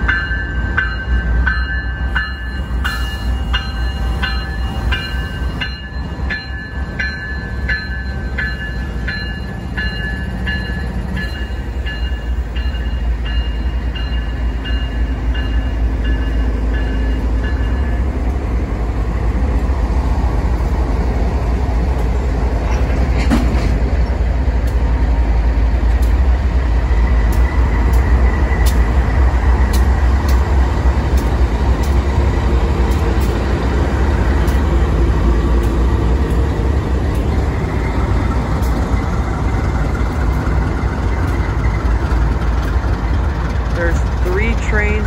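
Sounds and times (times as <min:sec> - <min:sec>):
freight train passing: 0:00.0 - 0:45.0.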